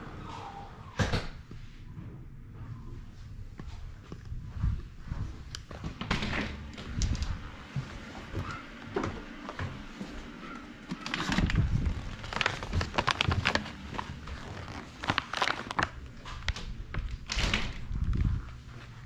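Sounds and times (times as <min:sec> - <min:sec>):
plastic pouch crinkling: 0:10.9 - 0:16.7.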